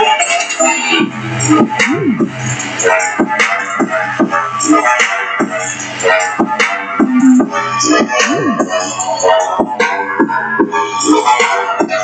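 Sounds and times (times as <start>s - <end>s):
music through small speaker: 0.0s - 12.0s.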